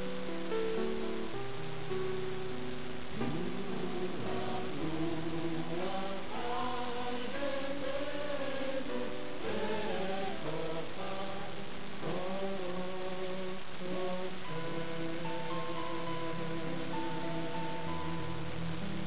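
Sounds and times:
male choir singing: 3.2 - 18.5.

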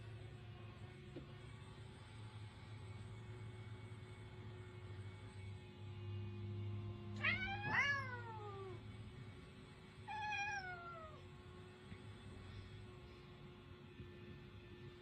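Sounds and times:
cat meowing: 7.2 - 8.8, 10.1 - 11.3.

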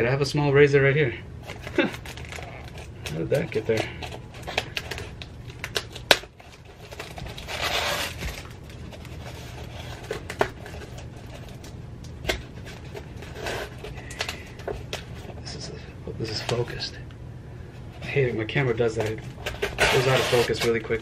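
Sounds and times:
knife cutting styrofoam: 7.0 - 8.5, 19.5 - 21.0.

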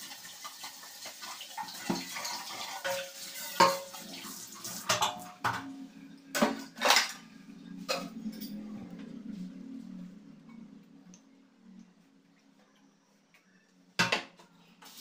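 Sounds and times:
running kitchen tap: 0.0 - 5.5
metal dishes clanking: 1.2 - 4.0, 4.8 - 8.7.

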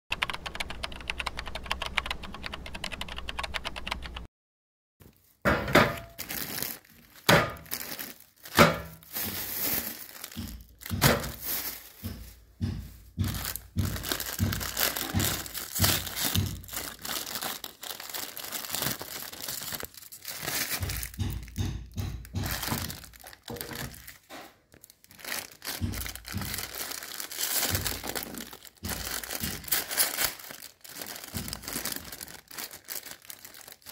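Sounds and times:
rapid typing-like clicks: 0.1 - 4.3
plastic wrappers crinkling and tearing: 5.0 - 33.9.

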